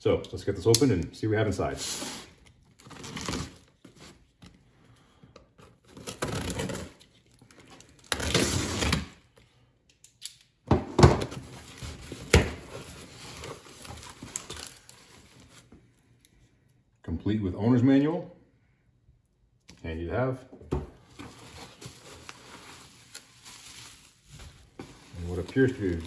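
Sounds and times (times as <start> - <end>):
cardboard rustling: 11.2 - 15.7, 21.0 - 26.0.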